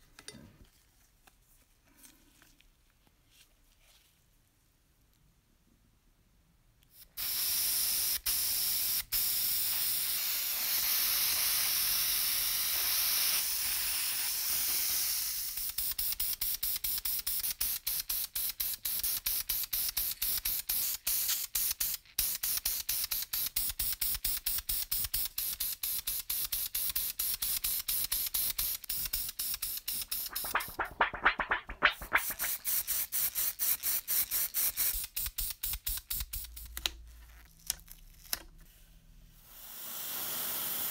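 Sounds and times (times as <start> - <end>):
spray paint hissing: 7.0 - 36.8, 39.5 - 40.9
short spray spurts: 28.9 - 36.6.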